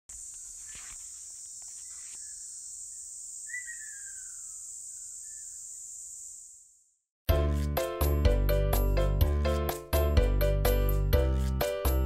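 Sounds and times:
insects droning: 0.1 - 7.1
bird call with falling tail: 3.4 - 5.9.

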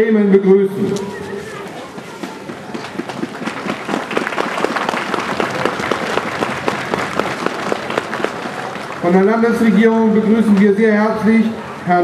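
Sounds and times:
crowd applauding: 1.6 - 10.2.

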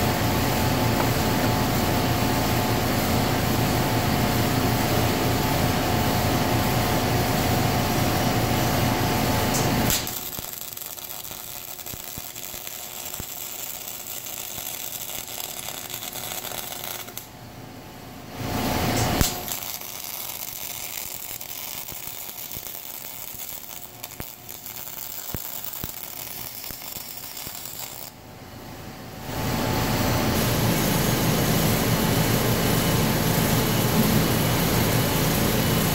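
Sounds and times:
loud humming machine noise: 0.0 - 35.9
arc welder crackling: 8.7 - 17.4, 18.4 - 28.2, 30.3 - 35.9
sharp welder click: 9.5 - 17.3, 19.0 - 28.1.

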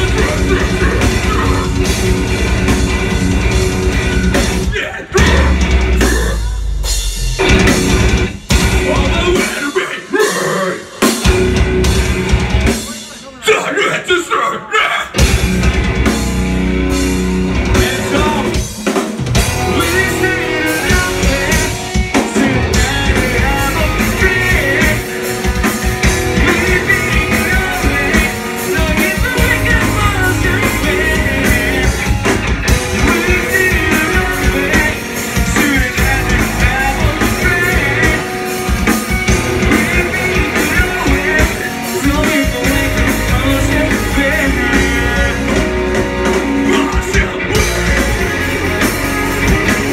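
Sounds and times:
drum kit: 0.0 - 13.4, 15.1 - 49.9
guitars: 0.0 - 13.4, 15.0 - 49.9
person singing into a microphone: 19.6 - 25.3, 26.4 - 32.1, 33.0 - 38.3, 39.7 - 45.8, 46.6 - 48.8.

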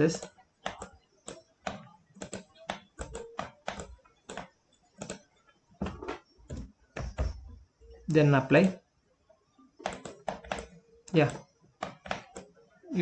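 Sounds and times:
keyboard and mouse clicking: 0.0 - 7.3, 9.8 - 12.7.

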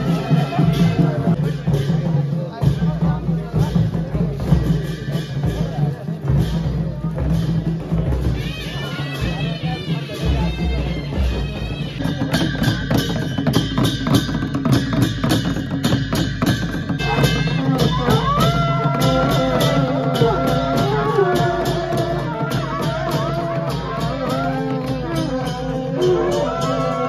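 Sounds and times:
wind instrument melody: 0.0 - 1.9, 7.8 - 13.6, 16.9 - 27.0
drums beaten with sticks: 0.0 - 27.0.

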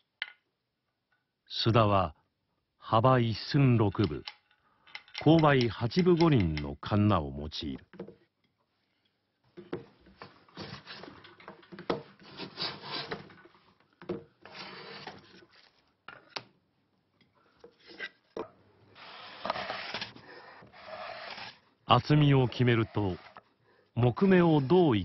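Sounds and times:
hand plane shaving wood: 12.2 - 13.3, 14.5 - 15.4, 19.0 - 23.4, 24.0 - 25.0.

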